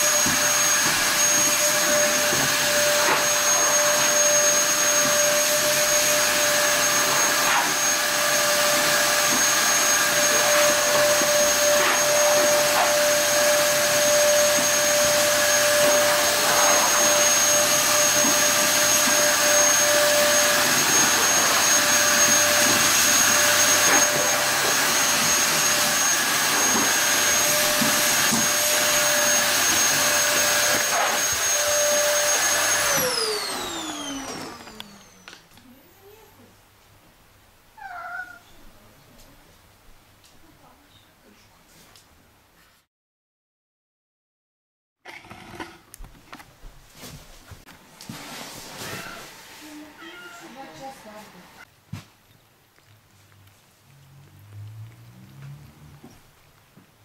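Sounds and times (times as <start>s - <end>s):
vacuum cleaner running: 0.0s - 36.4s, 45.1s - 51.7s.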